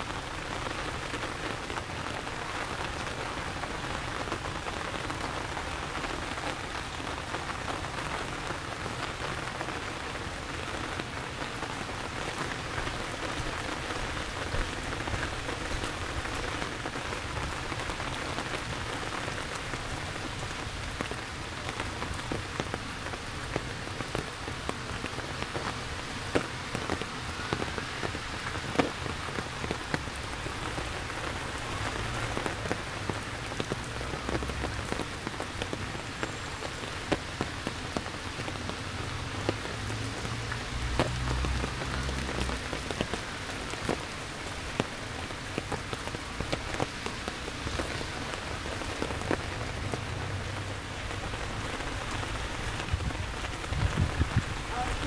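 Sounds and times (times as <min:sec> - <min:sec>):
heavy rain on hard surfaces: 0:00.0 - 0:55.0
sharp raindrop taps: 0:31.5 - 0:55.0.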